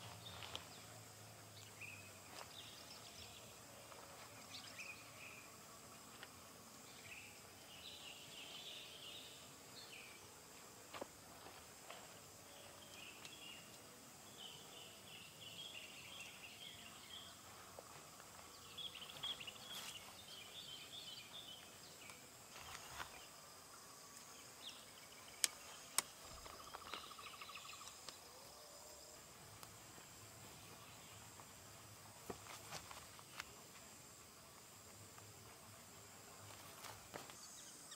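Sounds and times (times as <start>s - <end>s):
small birds chirping: 0.0s - 5.6s, 6.8s - 10.3s, 12.4s - 23.5s, 24.2s - 28.6s
high insect whine: 0.0s - 37.9s.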